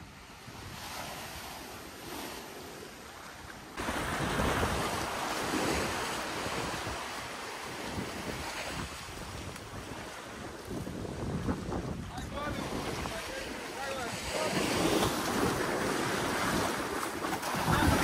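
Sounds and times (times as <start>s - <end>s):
small waves breaking on shore: 0.0s - 18.0s
wind buffeting microphone: 3.8s - 18.0s.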